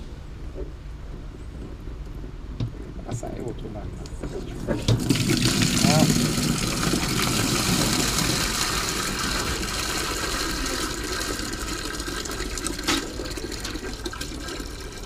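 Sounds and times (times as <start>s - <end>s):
water splashing into plastic bucket: 4.7s - 15.0s.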